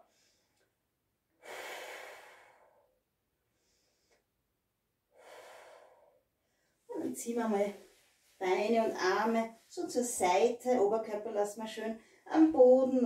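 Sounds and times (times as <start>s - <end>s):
woman breathing out: 1.4s - 3.0s, 5.1s - 6.6s.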